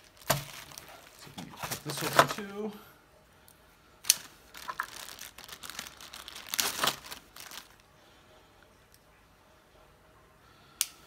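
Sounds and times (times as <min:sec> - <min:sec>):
plastic wrapping crinkling: 0:00.0 - 0:02.7, 0:04.0 - 0:07.9.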